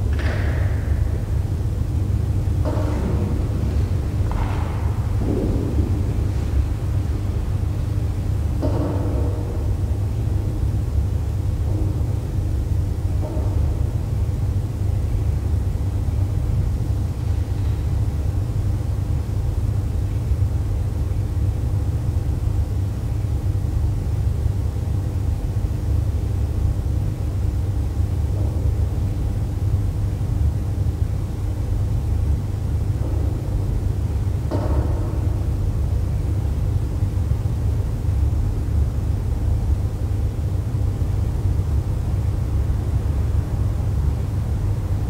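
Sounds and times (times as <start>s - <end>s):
faint steady hum: 0.0s - 45.0s.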